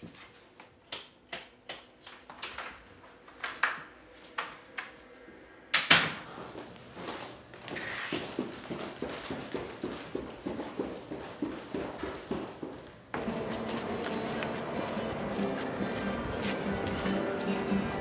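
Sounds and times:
footsteps: 6.5s - 18.0s.

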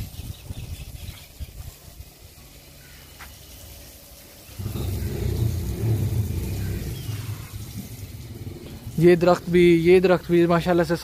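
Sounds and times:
vehicle engine rumble passing: 4.5s - 10.1s.

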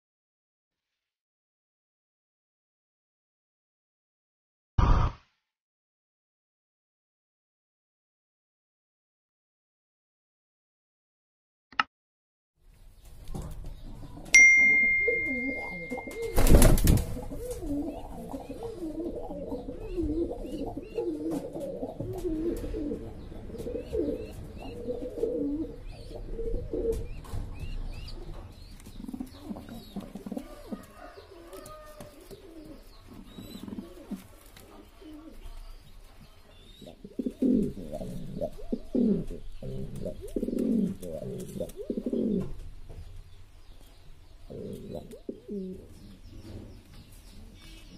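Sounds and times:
sharp loud thump: 4.8s - 5.3s
faint high chirps: 14.3s - 16.6s
steady high beep: 14.4s - 16.3s
pigeons cooing: 15.1s - 42.7s, 44.4s - 47.9s.

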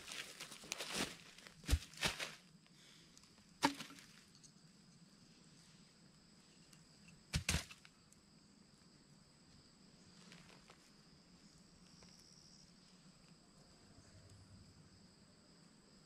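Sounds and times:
insect chorus: 0.0s - 16.0s.

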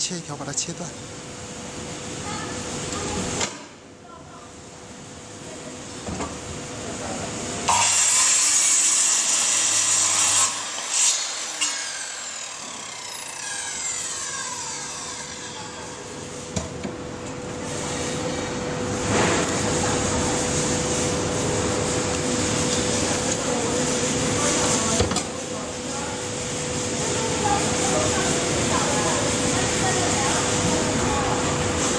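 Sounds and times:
circular saw cutting wood: 7.6s - 16.5s
saw blade spinning down whine: 7.7s - 16.2s.

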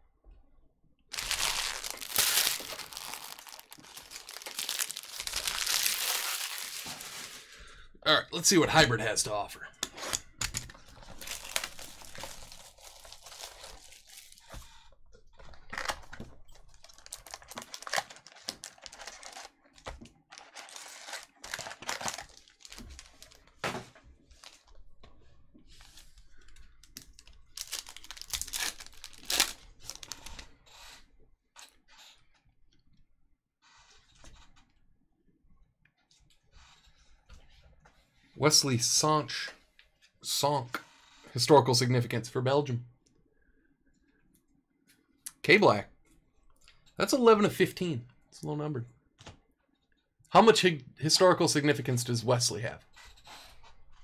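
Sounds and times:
card packs ripped and crinkled: 1.1s - 7.5s, 11.2s - 14.4s, 16.8s - 19.6s, 20.3s - 23.4s, 27.0s - 30.3s.

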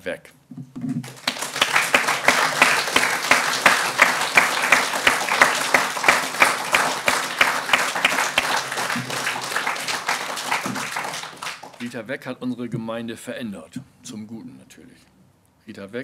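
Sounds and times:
single sharp claps: 1.0s - 11.9s
audience applauding: 1.0s - 12.0s.

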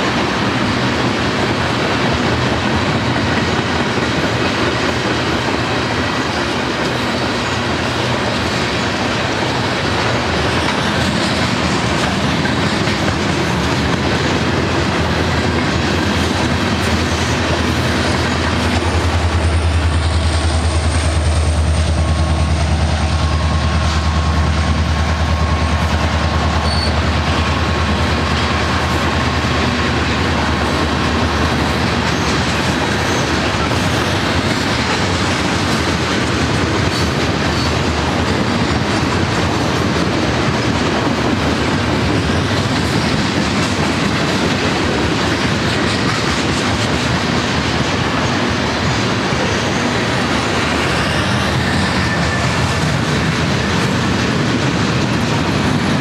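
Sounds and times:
diesel locomotive engine drone: 0.0s - 56.0s
train wheels clicking over rail joints: 0.0s - 56.0s
high wheel squeal: 26.5s - 27.2s, 32.1s - 34.2s, 50.6s - 52.8s.

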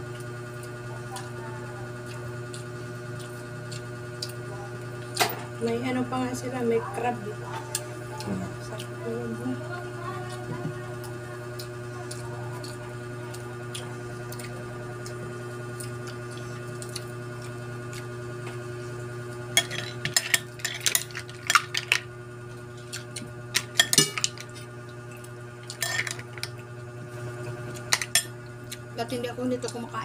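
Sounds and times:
steady low hum: 0.0s - 30.0s
spoon and shells clinking on plates: 19.6s - 22.0s, 23.6s - 24.5s, 25.7s - 26.5s, 27.9s - 28.3s.

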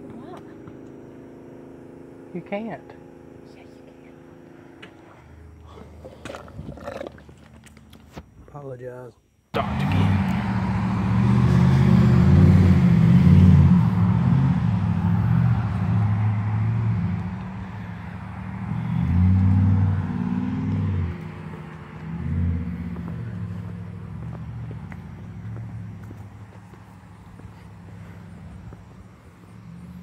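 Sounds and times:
vehicle engine running: 0.0s - 6.2s, 9.6s - 30.0s.

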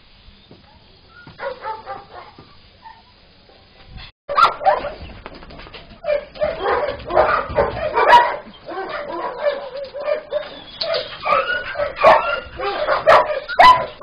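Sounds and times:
dogs barking and yelping: 1.2s - 3.1s, 4.3s - 5.1s, 6.0s - 14.0s.

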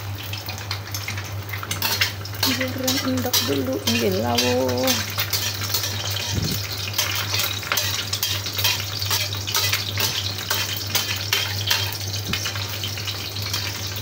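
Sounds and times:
egg sizzling in hot oil: 0.0s - 14.0s
metal spatula scraping pan: 1.8s - 12.1s.

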